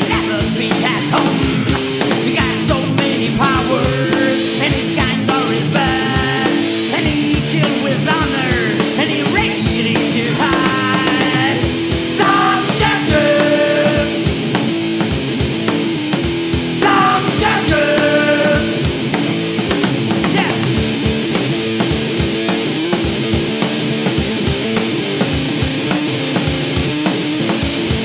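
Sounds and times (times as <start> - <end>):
electric guitar: 0.0 - 28.0
steady drum beat: 0.0 - 28.0.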